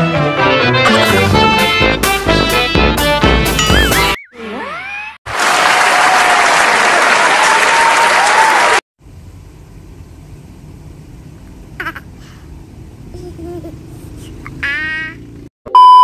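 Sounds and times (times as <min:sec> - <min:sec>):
audience applauding: 0:05.3 - 0:08.8.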